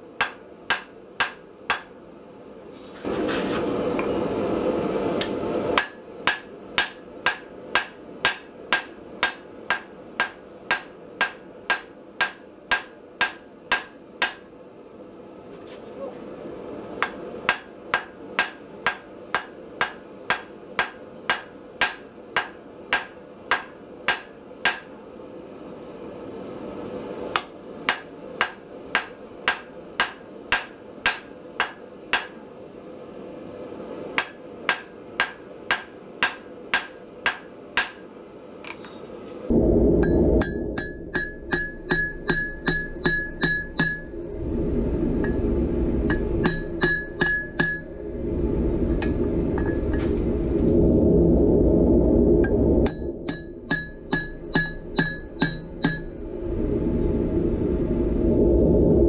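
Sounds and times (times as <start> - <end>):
steady hum: 0.0 - 59.0
loud rushing noise: 39.5 - 41.2, 44.0 - 59.0
hammer blows on anvil: 40.0 - 44.2, 46.1 - 47.9, 52.8 - 56.1.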